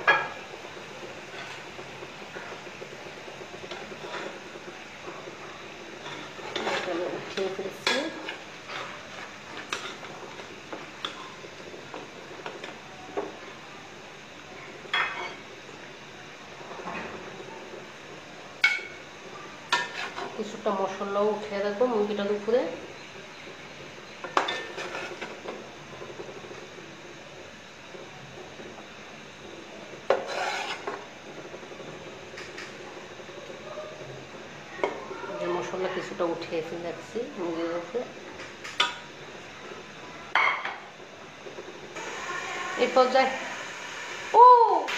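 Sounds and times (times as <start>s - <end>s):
metal spoon scraping a pot: 6.0s - 7.0s, 19.7s - 20.3s, 30.1s - 31.0s
utensil scraping metal pot: 6.0s - 10.1s, 19.7s - 20.4s, 30.1s - 31.0s.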